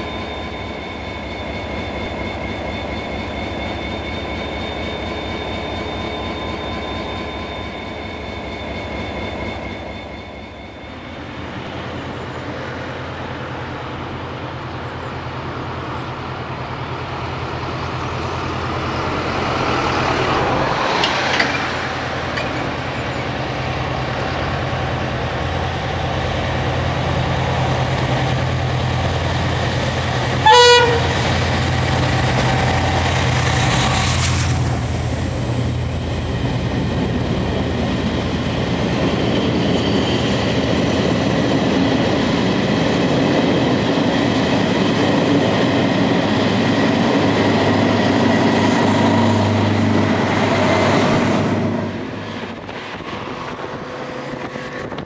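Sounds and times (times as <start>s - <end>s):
diesel locomotive engine running: 0.0s - 55.0s
train coaches passing: 0.0s - 55.0s
train horn blast: 30.4s - 31.4s.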